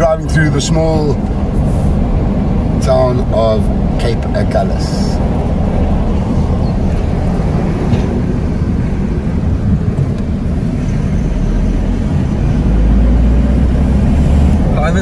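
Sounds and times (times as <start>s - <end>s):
car engine and tyre rumble: 0.0s - 15.0s.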